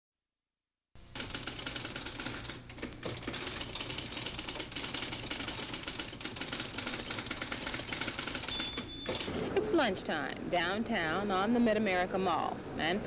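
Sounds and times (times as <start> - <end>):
rapid mechanical clicking clatter: 1.1 - 9.3.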